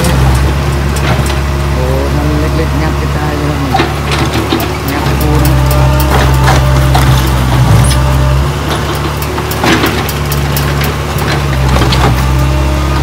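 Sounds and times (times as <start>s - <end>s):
excavator diesel engine: 0.0s - 13.0s
broken concrete clattering: 3.7s - 13.0s.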